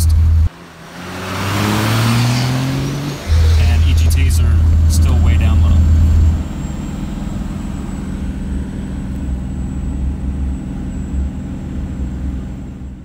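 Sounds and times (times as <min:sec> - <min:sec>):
diesel engine drone: 0:00.0 - 0:13.0
faint high turbo whine: 0:03.1 - 0:13.0.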